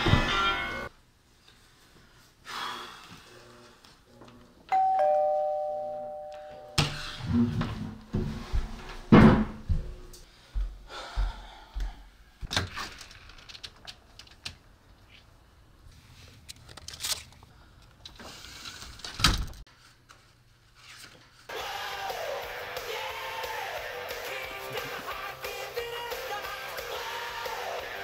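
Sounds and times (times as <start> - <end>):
music: 0.0 - 0.9, 21.5 - 28.0
footsteps: 6.9 - 12.0
doors knocking and thudding: 9.1 - 9.8.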